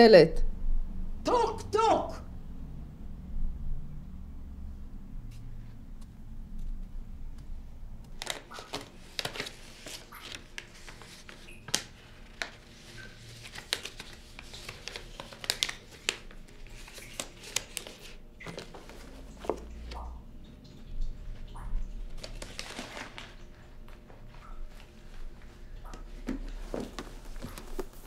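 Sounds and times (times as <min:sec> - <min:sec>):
paper rustling and crinkling: 0:08.0 - 0:19.9, 0:22.1 - 0:25.4, 0:26.1 - 0:28.0.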